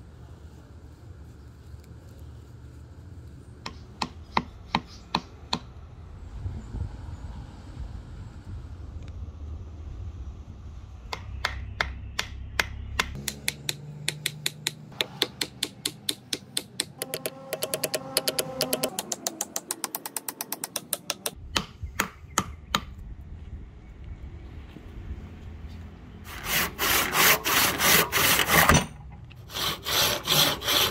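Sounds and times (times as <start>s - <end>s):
steady low rumble: 5.7s - 13.1s
hammer tapping wedge: 11.1s - 22.9s.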